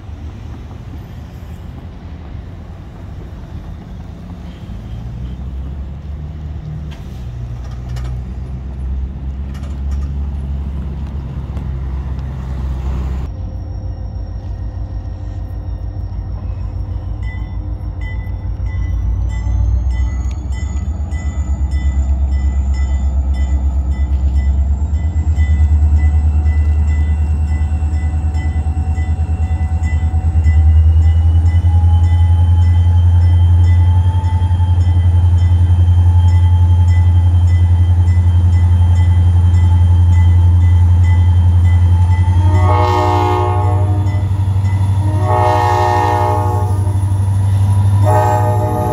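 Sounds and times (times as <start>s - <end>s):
diesel locomotive engines rumbling: 0.0s - 48.9s
locomotive horn blast: 42.2s - 48.9s.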